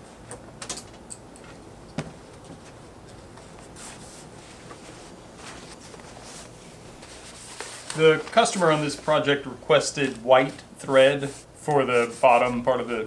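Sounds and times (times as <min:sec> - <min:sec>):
fabric rustling: 0:01.5 - 0:09.3.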